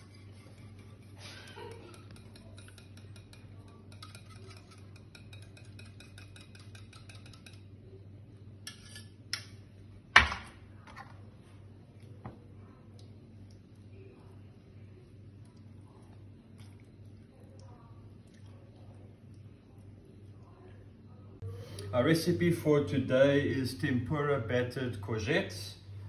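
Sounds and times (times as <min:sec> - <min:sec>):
metal spoon scraping a saucepan: 0:00.0 - 0:07.7, 0:08.6 - 0:09.2
spoon clinking on kitchenware: 0:01.4 - 0:07.7.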